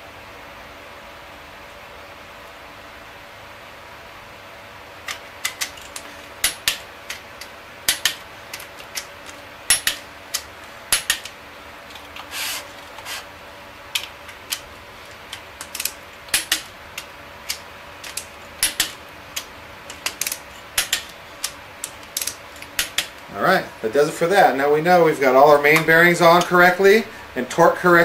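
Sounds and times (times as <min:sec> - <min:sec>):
steady low hum: 0:00.0 - 0:28.0
torque wrench clicks: 0:05.1 - 0:09.1, 0:09.7 - 0:11.4, 0:15.2 - 0:23.2
scraping rasp: 0:12.2 - 0:13.3.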